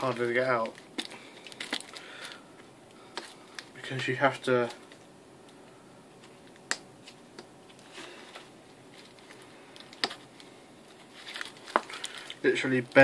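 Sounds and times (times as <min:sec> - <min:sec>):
paper rustling: 0:07.0 - 0:12.6.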